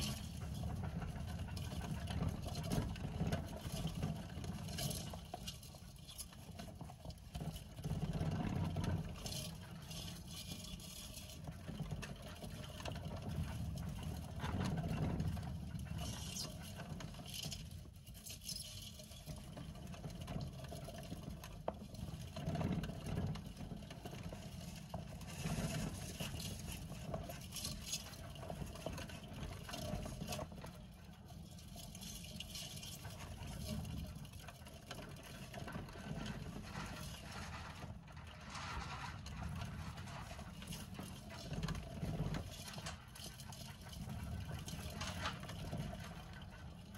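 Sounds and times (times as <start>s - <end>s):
hamster wheel spinning rumble: 0.0s - 46.9s.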